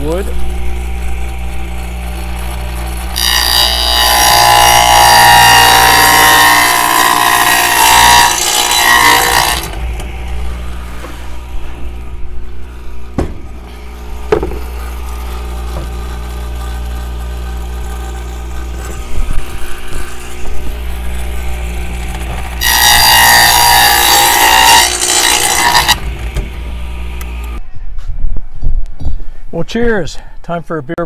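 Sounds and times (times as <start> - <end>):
saw cutting groove in plywood: 0.0 - 27.6
saw motor humming: 0.0 - 27.6
sharp knocks: 13.1 - 13.6, 14.2 - 14.7.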